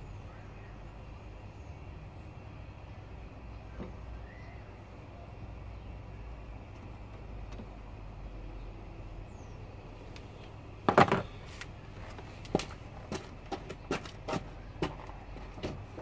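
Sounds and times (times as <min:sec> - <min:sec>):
steady low hum: 0:00.0 - 0:16.0
clatter of sharp knocks: 0:10.8 - 0:11.4.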